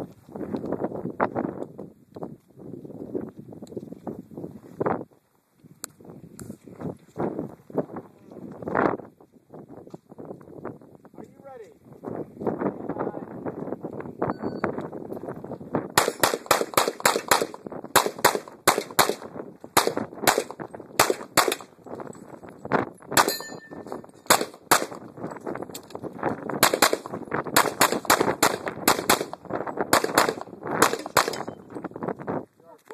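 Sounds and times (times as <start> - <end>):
pistol shots: 16.0 - 21.7, 24.2 - 25.1, 26.6 - 31.6
steel target ringing: 23.2 - 24.0.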